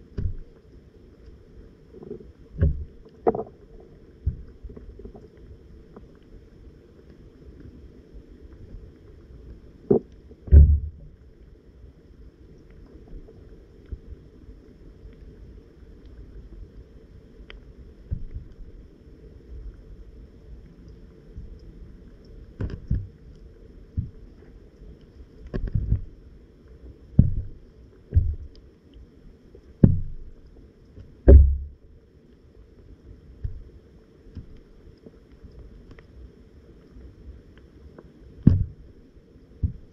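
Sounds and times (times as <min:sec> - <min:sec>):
low water rumble: 0:00.0 - 0:39.9
muffled underwater thumps: 0:00.1 - 0:00.5, 0:02.0 - 0:03.6, 0:04.2 - 0:05.2, 0:09.9 - 0:11.2, 0:18.1 - 0:18.5, 0:22.6 - 0:23.2, 0:23.9 - 0:24.2, 0:25.5 - 0:26.1, 0:27.2 - 0:28.6, 0:29.8 - 0:30.4, 0:31.2 - 0:31.8, 0:38.4 - 0:38.9, 0:39.6 - 0:39.9
dull knocks: 0:09.9 - 0:11.0, 0:27.2 - 0:28.5, 0:29.8 - 0:30.2, 0:31.3 - 0:31.8, 0:38.4 - 0:38.8.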